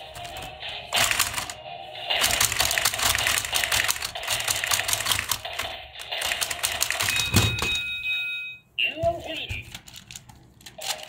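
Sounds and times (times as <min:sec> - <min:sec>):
toy robots plastic clattering: 0:00.0 - 0:01.6, 0:02.2 - 0:07.6, 0:09.2 - 0:11.0.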